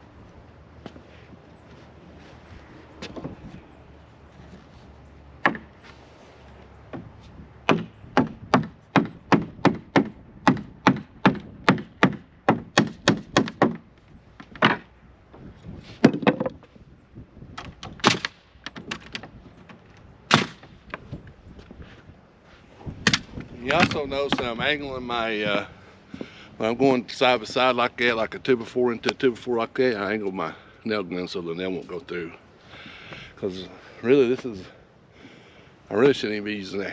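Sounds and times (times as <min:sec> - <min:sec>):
hammer striking wood: 0:05.4 - 0:05.7, 0:06.9 - 0:14.9, 0:20.3 - 0:21.0, 0:23.1 - 0:24.6
nail gun firing: 0:07.7 - 0:13.8, 0:17.8 - 0:18.4, 0:20.3 - 0:20.8.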